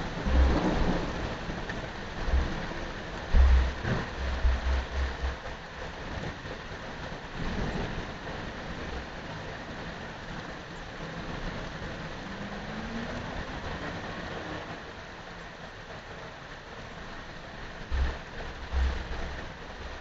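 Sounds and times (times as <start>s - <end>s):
faint rising hum: 0.0s - 5.5s
low thunder rumble: 0.0s - 14.1s
wind buffeting microphone: 0.0s - 14.7s
wind hissing through leaves: 0.0s - 20.0s.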